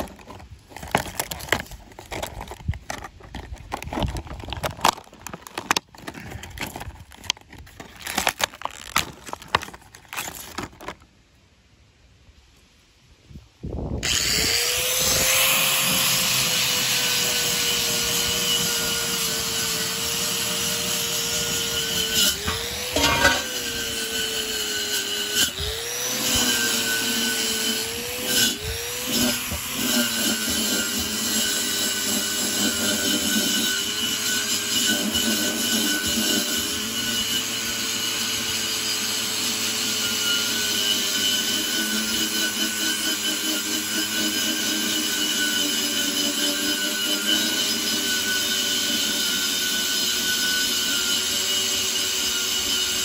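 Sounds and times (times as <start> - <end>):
angle grinder wire wheel scrubbing metal: 14.0 - 53.0.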